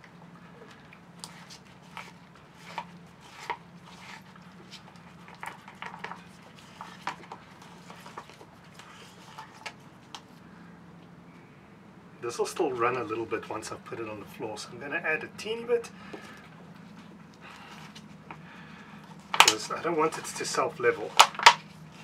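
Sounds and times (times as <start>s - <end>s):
stick scraping in plastic cup: 1.2s - 9.8s.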